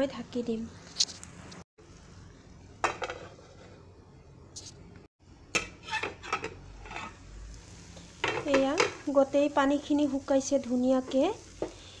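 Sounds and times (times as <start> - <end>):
metal lid clanking on pan: 5.5 - 7.2.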